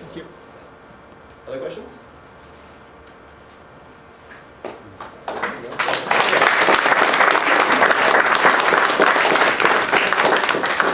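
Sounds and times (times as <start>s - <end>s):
audience applause: 5.2s - 10.9s.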